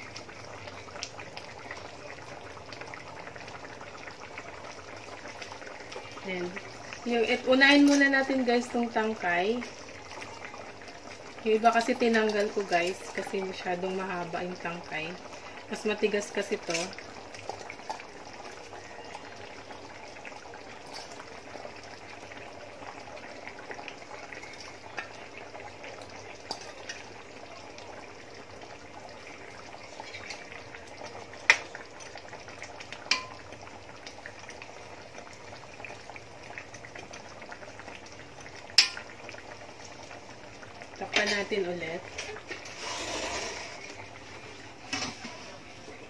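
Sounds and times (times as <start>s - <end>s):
coconut milk simmering bubbling: 0.0s - 46.0s.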